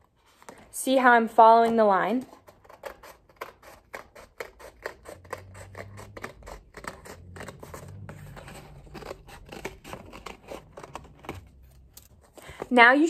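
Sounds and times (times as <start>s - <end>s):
scissors snipping paper: 2.3s - 12.7s.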